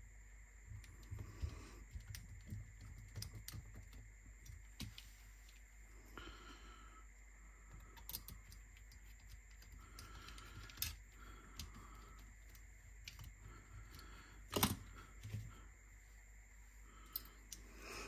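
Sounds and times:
clicks and taps of small parts: 0.8s - 5.6s, 7.7s - 15.4s.

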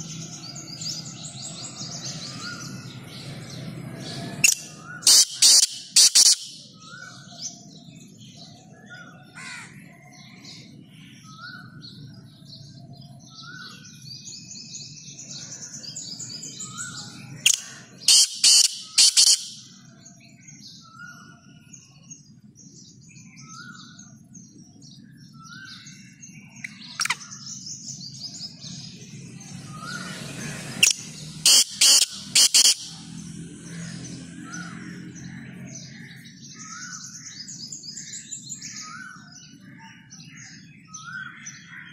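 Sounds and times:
birds chirping softly: 0.0s - 41.9s
francolin calling: 4.4s - 7.1s, 16.6s - 19.8s, 30.8s - 33.0s.

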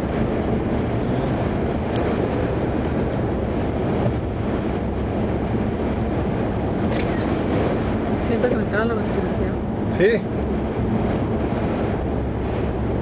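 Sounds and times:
road rumble inside car: 0.0s - 13.0s.

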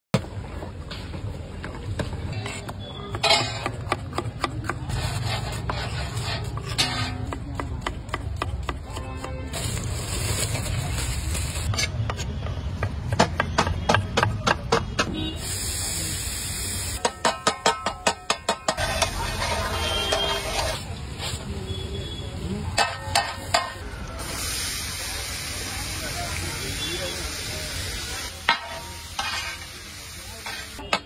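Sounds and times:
metal spatula scraping and tapping: 2.3s - 9.4s, 17.0s - 20.8s, 22.7s - 23.8s, 28.5s - 29.7s, 30.4s - 31.0s
food sizzling on griddle: 15.4s - 17.3s, 23.1s - 30.9s.

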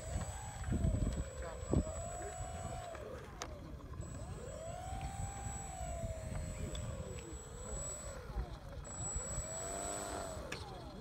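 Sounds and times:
model airplane motor whining: 0.0s - 11.0s.

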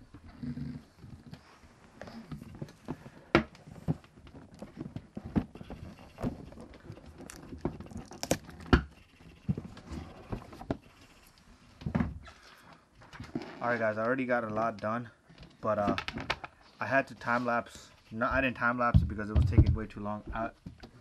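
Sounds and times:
panels knocking and clicking: 18.3s - 21.0s.

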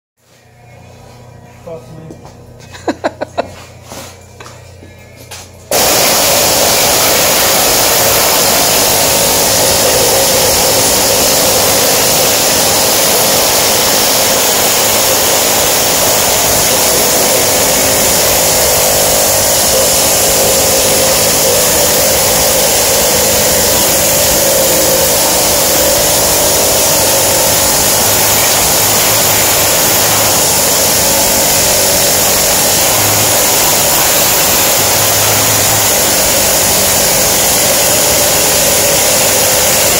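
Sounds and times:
loud steady machine noise: 5.7s - 39.9s.

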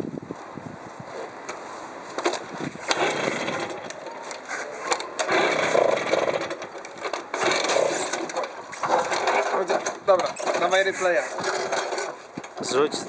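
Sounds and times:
moped engine turning over: 2.3s - 4.0s, 4.9s - 12.2s.

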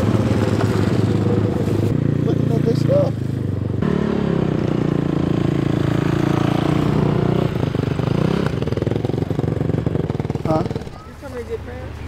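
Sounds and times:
atv engine idling: 6.8s - 12.0s.

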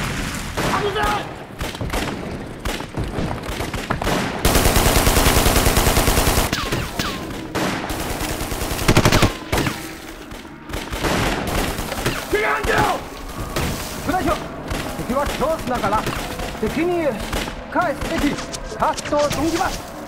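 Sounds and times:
machine-gun burst: 4.0s - 9.8s.

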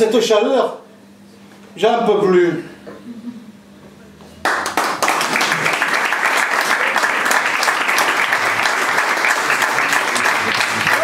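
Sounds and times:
audience applauding: 4.4s - 11.0s.

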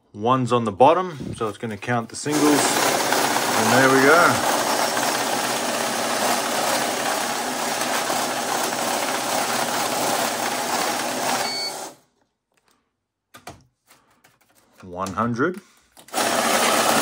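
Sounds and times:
money counter whirring: 2.3s - 12.0s, 16.1s - 17.0s
short beep: 11.4s - 11.8s.

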